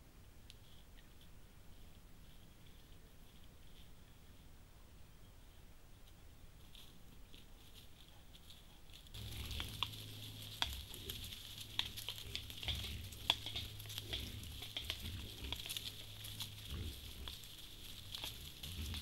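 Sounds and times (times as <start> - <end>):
steady low hum: 0.0 - 19.0
animals rustling in dry leaves: 6.4 - 19.0.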